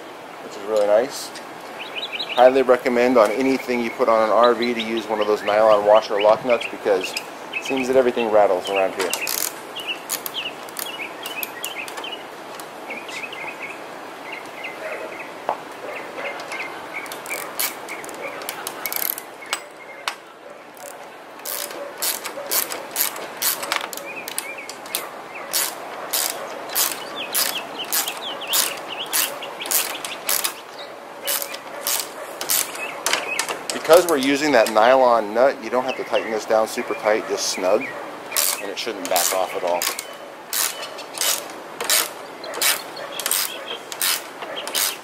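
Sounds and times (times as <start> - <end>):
ratchet wrench clicking: 9.2 - 10.3, 21.4 - 23.6, 24.3 - 30.6, 39.2 - 45.0.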